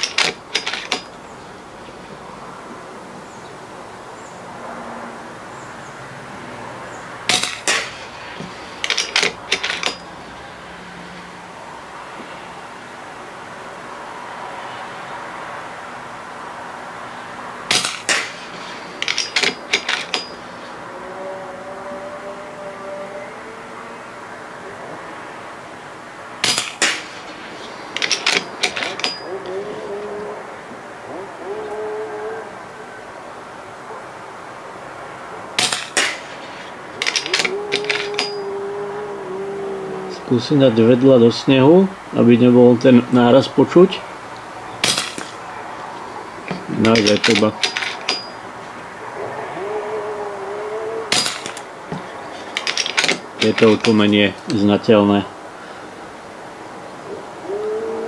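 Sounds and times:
sharp metallic clicks: 0.0 - 1.3, 7.3 - 10.1, 17.7 - 20.5, 26.4 - 29.4, 35.6 - 38.5
air rifle shots: 26.4 - 29.1, 44.8 - 45.4.

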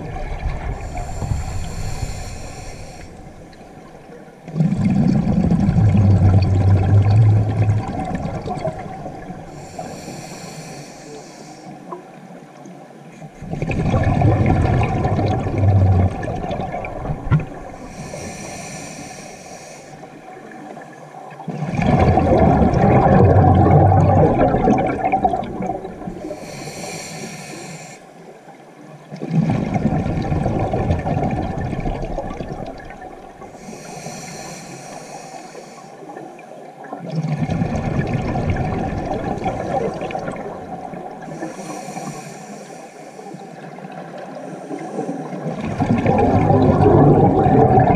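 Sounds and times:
underwater bubbling exhale: 0.0 - 28.1, 29.0 - 47.9
regulator inhale hiss: 0.8 - 3.6, 9.5 - 11.9, 17.7 - 20.2, 26.2 - 28.2, 33.5 - 36.2, 41.2 - 43.7, 44.4 - 45.4.

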